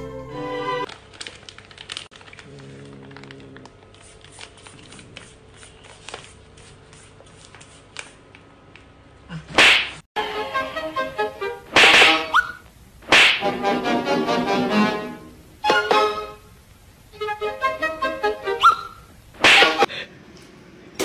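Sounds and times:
plastic bag crinkling: 0:00.9 - 0:06.5.

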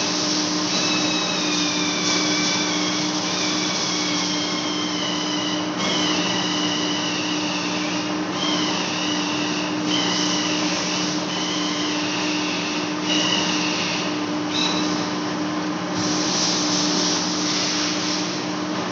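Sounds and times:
cutting tool squealing: 0:00.0 - 0:15.1
lathe machine hum: 0:00.0 - 0:17.4.

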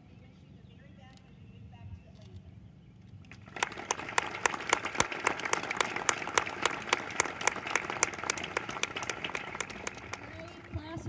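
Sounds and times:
audience applauding: 0:03.4 - 0:11.0.

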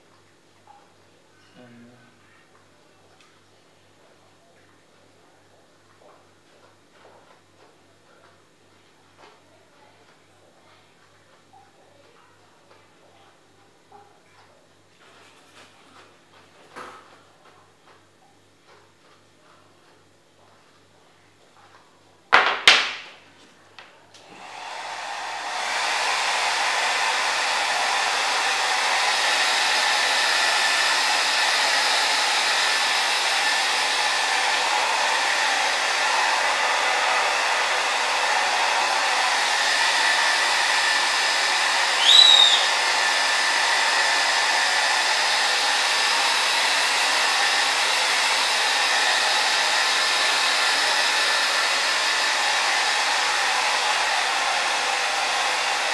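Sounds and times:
hair dryer blowing: 0:24.2 - 0:55.9.

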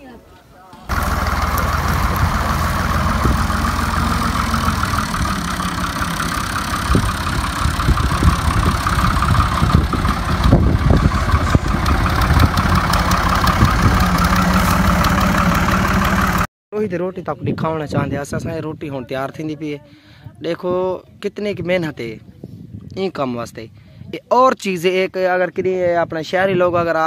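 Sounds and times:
tractor diesel engine under load: 0:00.8 - 0:16.5.

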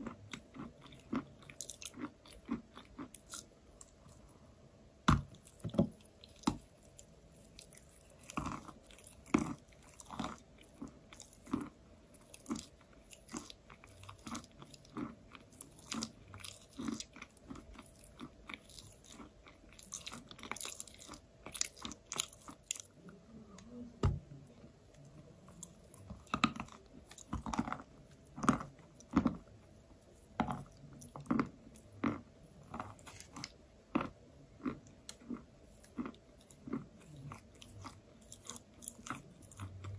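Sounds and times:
chewing chalk crunches: 0:24.9 - 0:39.9.

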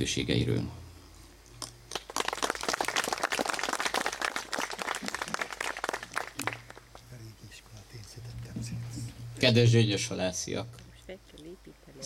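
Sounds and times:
audience applauding: 0:01.9 - 0:07.3.

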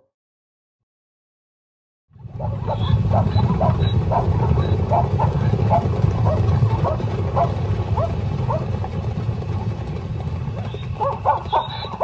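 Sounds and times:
low rumble: 0:02.1 - 0:11.6
hyenas yipping: 0:02.4 - 0:08.7, 0:10.6 - 0:12.0.

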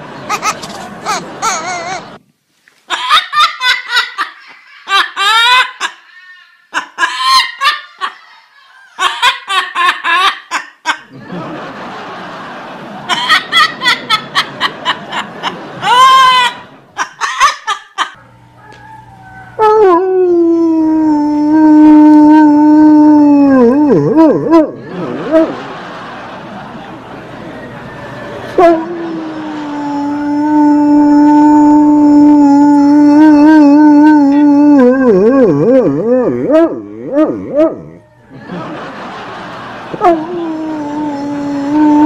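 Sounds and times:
parrot cackling laughter: 0:00.0 - 0:02.2, 0:02.9 - 0:18.2, 0:23.2 - 0:42.0
dog howling: 0:18.2 - 0:25.8, 0:27.6 - 0:39.1, 0:39.9 - 0:42.0.

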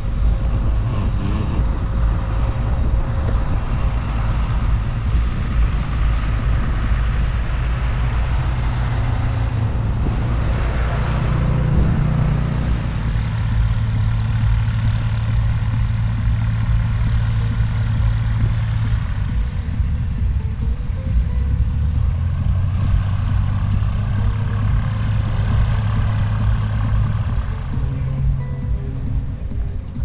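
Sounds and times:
wind buffeting microphone: 0:00.0 - 0:14.8
distant engine drone: 0:00.0 - 0:30.0.

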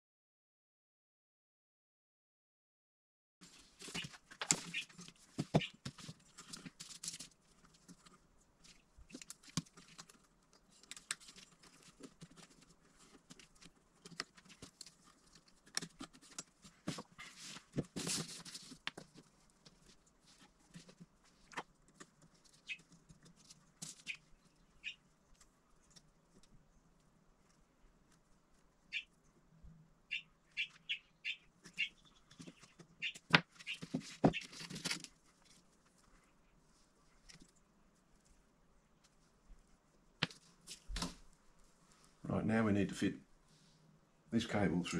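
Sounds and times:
cables and plastic parts rustling: 0:03.4 - 0:24.6, 0:31.6 - 0:38.4.

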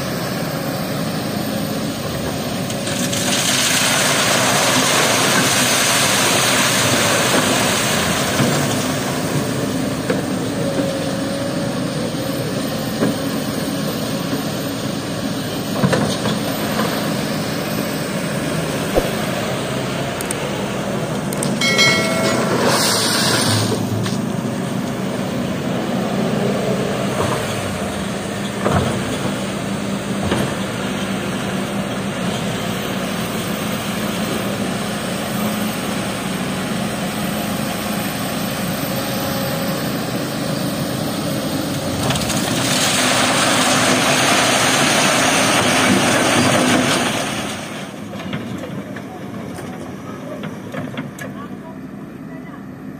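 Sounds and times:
excavator diesel engine running: 0:00.0 - 0:52.9
loud rushing noise: 0:17.9 - 0:20.2.

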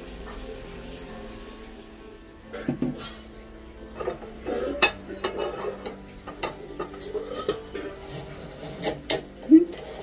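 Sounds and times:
spoon stirring and scraping in pan: 0:02.4 - 0:10.0.

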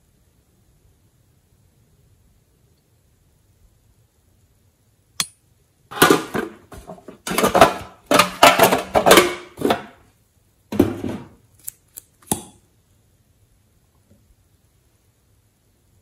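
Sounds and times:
toy containers clattering: 0:05.9 - 0:10.0.

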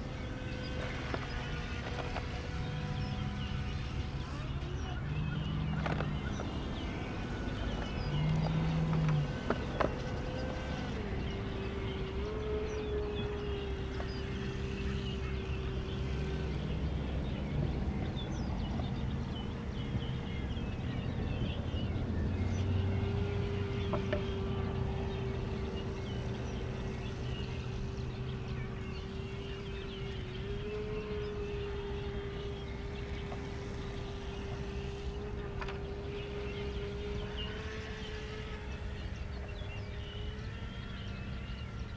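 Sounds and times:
faint birds chirping: 0:00.0 - 0:41.9
model boat electric motor whining: 0:00.0 - 0:41.9.

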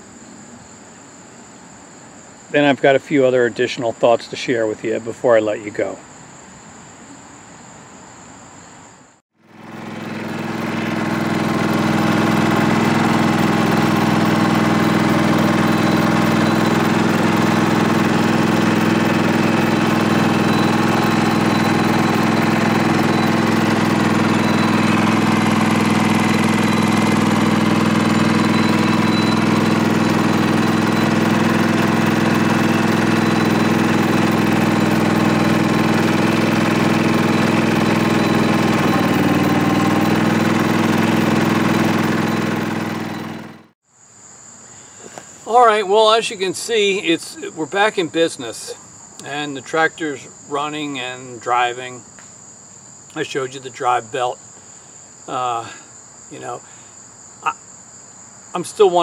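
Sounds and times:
crickets trilling: 0:00.0 - 0:09.1, 0:12.1 - 0:38.5, 0:43.9 - 0:59.0
lawn tractor engine running: 0:09.4 - 0:43.8, 0:45.0 - 0:50.0.

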